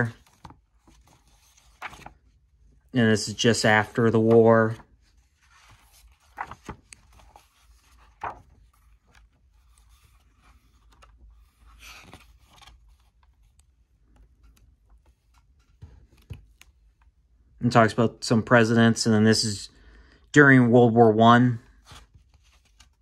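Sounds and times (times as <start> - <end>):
book pages turning: 0.0 - 2.4, 3.1 - 17.1, 21.7 - 23.0.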